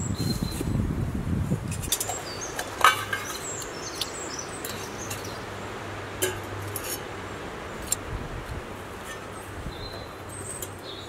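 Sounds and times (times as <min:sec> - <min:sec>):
birds chirping: 0:01.9 - 0:08.1, 0:08.8 - 0:11.0.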